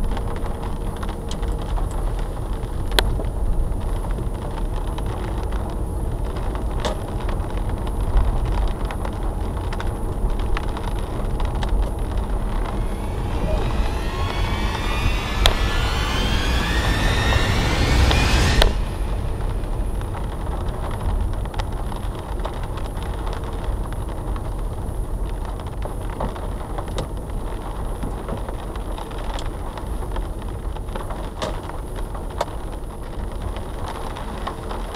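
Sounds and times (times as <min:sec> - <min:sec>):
road and tyre rumble: 0:00.0 - 0:34.9
car engine revving: 0:11.4 - 0:23.1.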